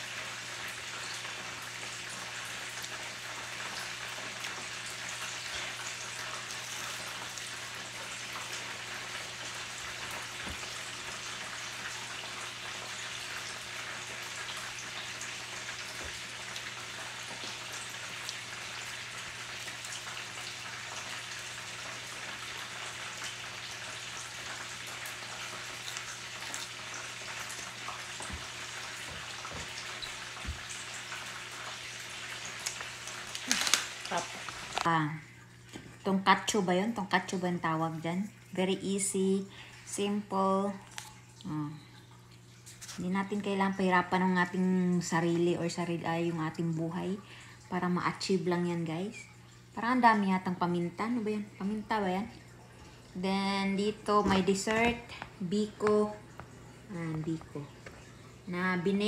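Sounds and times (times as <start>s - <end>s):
hot oil sizzling and crackling: 0.0s - 37.7s.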